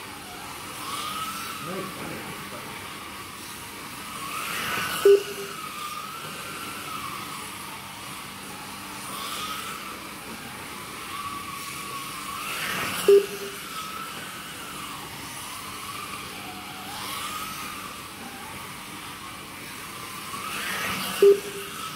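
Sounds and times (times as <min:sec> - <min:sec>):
slot car motors whining: 0:00.0 - 0:21.9
short loud beep: 0:05.0 - 0:05.6, 0:13.1 - 0:13.6, 0:21.2 - 0:21.7.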